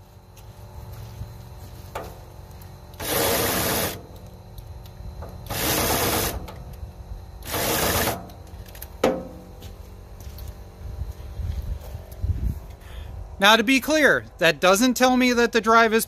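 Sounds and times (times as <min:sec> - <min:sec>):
electric drill spinning: 0:03.0 - 0:04.0, 0:05.4 - 0:06.4, 0:07.4 - 0:08.2
sharp metallic knock: 0:09.0 - 0:09.4.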